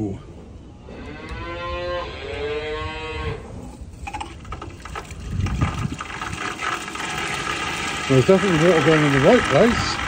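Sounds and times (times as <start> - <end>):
cow mooing: 0.9 - 3.4
water pouring into trough: 4.1 - 10.0.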